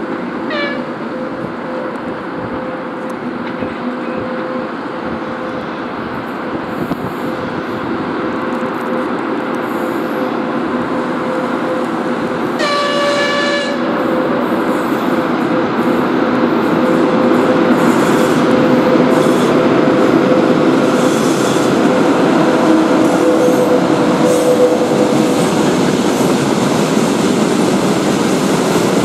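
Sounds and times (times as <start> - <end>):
electric locomotive running: 0.0 - 29.0
train horn blast: 0.4 - 2.0, 12.5 - 14.5, 22.3 - 24.8.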